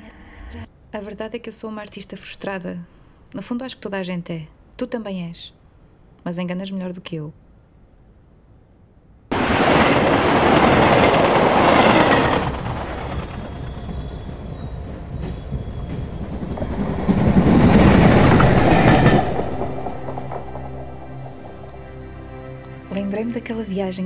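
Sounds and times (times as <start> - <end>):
passenger train rumbling: 9.3 - 24.0.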